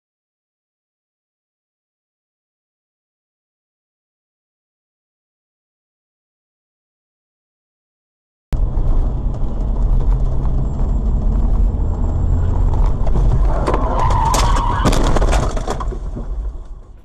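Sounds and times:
car road and engine rumble: 8.6s - 17.0s
tyre squeal: 11.8s - 16.2s.

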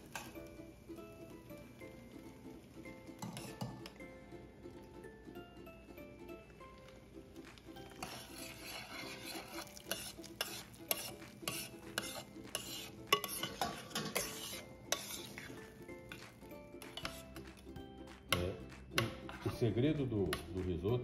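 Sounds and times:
metal spoon scraping a pan: 3.1s - 4.0s, 7.8s - 17.5s, 18.4s - 19.6s.

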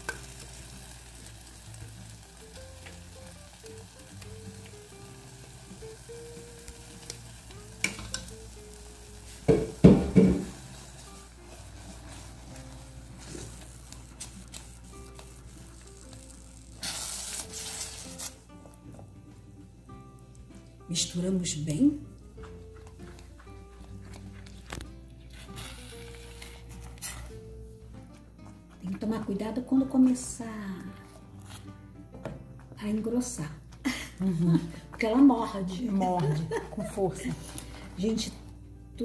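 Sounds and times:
jam sizzling softly: 0.0s - 28.4s
knocks on a pot: 9.5s - 10.6s
spatula scraping a pot: 10.6s - 13.7s, 16.8s - 18.4s.

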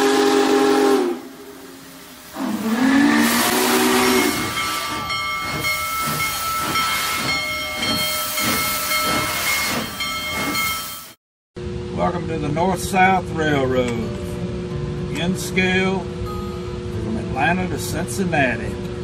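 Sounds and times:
hiss of escaping steam: 0.0s - 11.1s
steam locomotive whistle: 0.0s - 11.2s.

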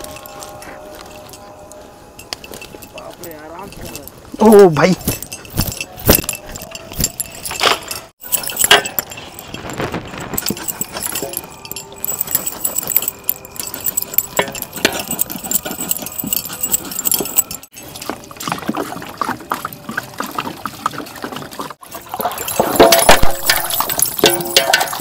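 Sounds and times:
metal clinks against cooking pot: 5.0s - 18.5s, 21.8s - 25.0s.

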